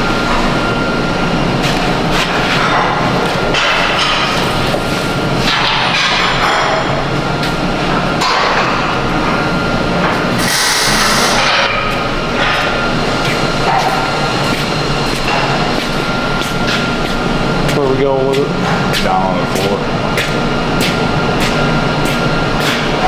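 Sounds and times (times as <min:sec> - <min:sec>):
fan-like shop hum: 0:00.0 - 0:23.0
loud hiss: 0:10.4 - 0:11.7.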